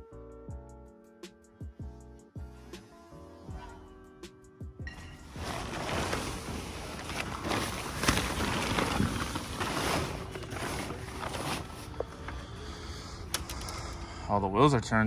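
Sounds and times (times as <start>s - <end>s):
fabric cover rustling: 4.9s - 13.3s.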